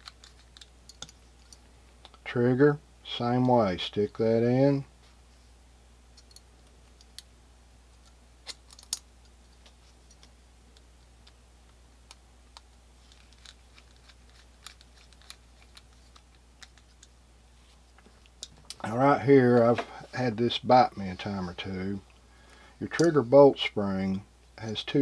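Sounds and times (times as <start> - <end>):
small steel parts clicking: 0.0 - 2.2, 6.2 - 6.4, 8.5 - 9.1, 13.1 - 17.1
faint low hum: 0.0 - 25.0.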